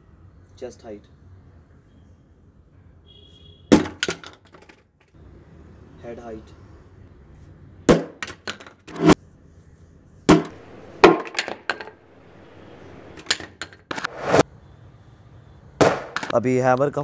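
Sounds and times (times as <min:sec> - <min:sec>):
hammer and helmet clattering: 0:03.7 - 0:04.8, 0:10.3 - 0:14.1, 0:15.8 - 0:16.4
short rising rush: 0:14.0 - 0:14.4.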